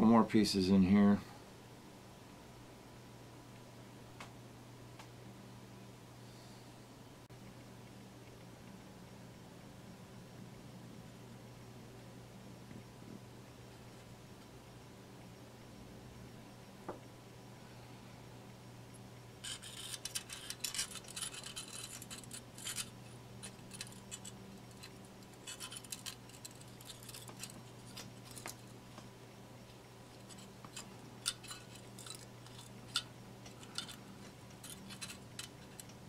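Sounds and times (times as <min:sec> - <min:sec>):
steady low hum: 0:00.0 - 0:36.0
porcelain fragments clicking: 0:19.4 - 0:28.8, 0:30.1 - 0:36.0.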